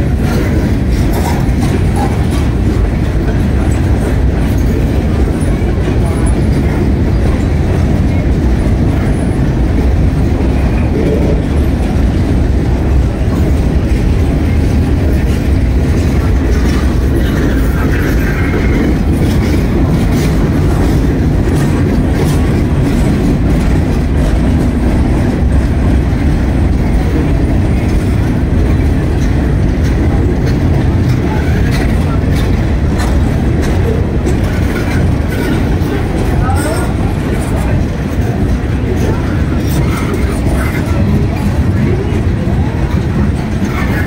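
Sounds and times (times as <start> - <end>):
train wheels rumbling on rail: 0.0 - 44.0
wheels clicking over rail joints: 0.0 - 44.0.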